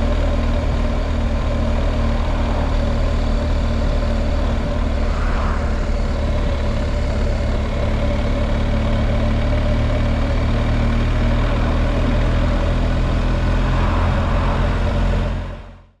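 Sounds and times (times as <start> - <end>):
motorcycle engine running: 0.0 - 15.9
road noise: 0.0 - 16.0
wind noise: 2.8 - 8.2.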